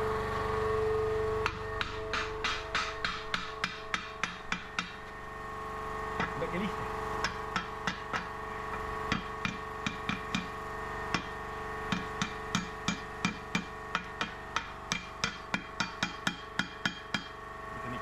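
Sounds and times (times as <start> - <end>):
steady hum: 0.0 - 18.0
hammer striking hot steel: 1.4 - 5.2, 6.2 - 6.4, 7.2 - 17.4.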